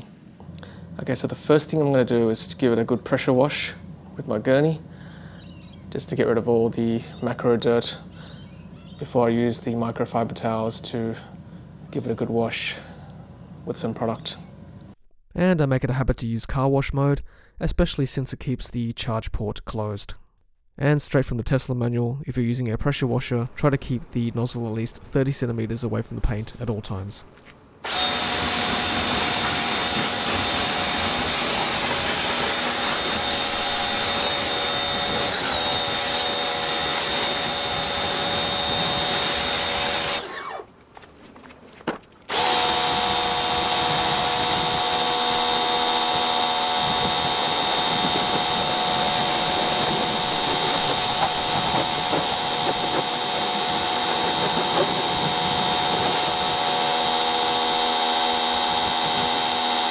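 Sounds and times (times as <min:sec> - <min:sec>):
water jet hissing: 0:27.8 - 0:37.3
pressure washer motor whine: 0:27.8 - 0:40.7, 0:42.3 - 0:59.9.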